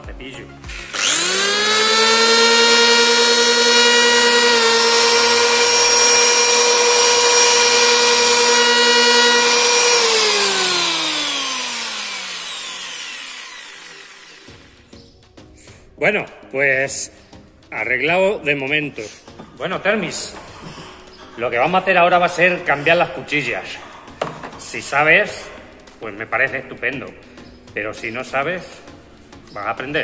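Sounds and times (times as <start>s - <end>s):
electric planer whining: 0.7s - 14.9s.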